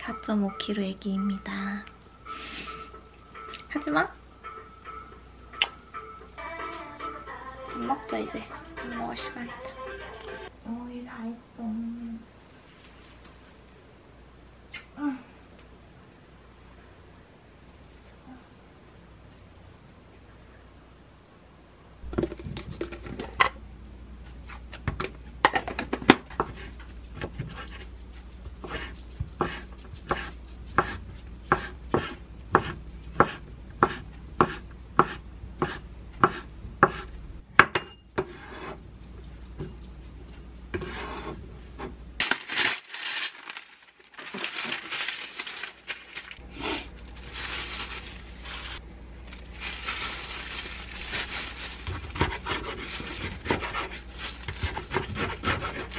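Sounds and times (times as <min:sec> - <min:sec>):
knife chopping on wooden board: 0:28.6 - 0:38.8
plastic rustling and crinkling: 0:42.2 - 0:55.9.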